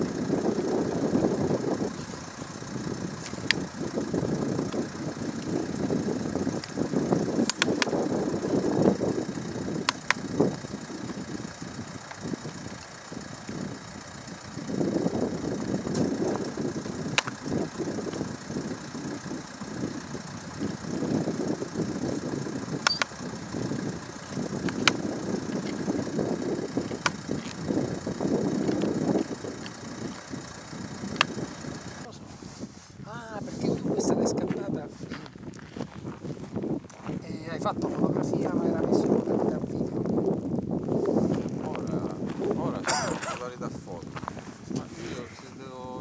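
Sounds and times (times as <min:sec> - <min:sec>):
sharp clicks: 0:00.0 - 0:32.1.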